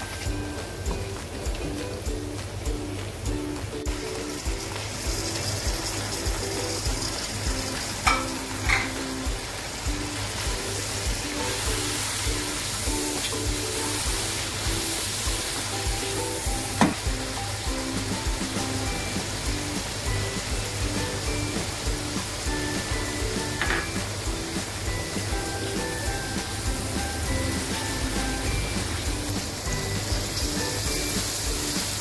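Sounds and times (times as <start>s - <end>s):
background music with a steady beat: 0.0s - 32.0s
meat sizzling in a pan: 0.0s - 32.0s
spatula knocking on a pan: 16.7s - 17.1s.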